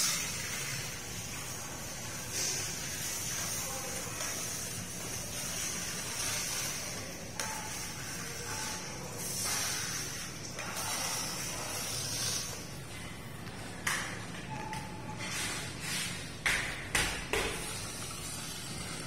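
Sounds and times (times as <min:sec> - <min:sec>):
scraper hissing on tiles: 0:00.0 - 0:12.8, 0:15.2 - 0:16.3.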